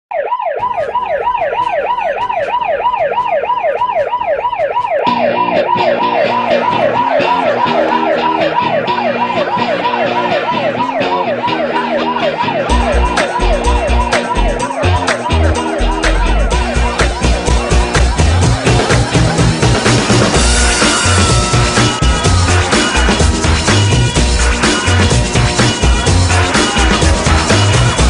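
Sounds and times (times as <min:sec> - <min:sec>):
siren-like synth wail: 0:00.1 - 0:28.0
ticking beat: 0:00.6 - 0:28.0
bass line: 0:05.1 - 0:28.0
heavy kick drum: 0:15.3 - 0:28.0.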